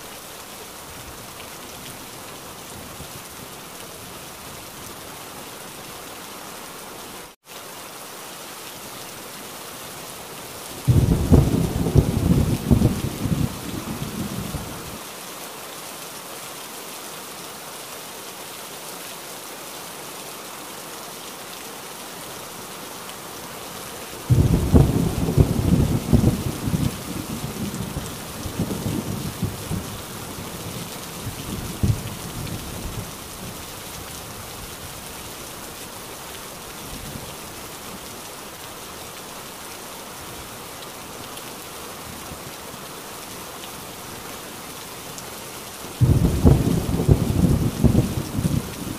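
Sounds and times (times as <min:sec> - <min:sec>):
heavy rain: 0:00.0 - 0:48.9
thunder rumbling: 0:10.9 - 0:14.8, 0:24.3 - 0:30.0, 0:46.0 - 0:48.9.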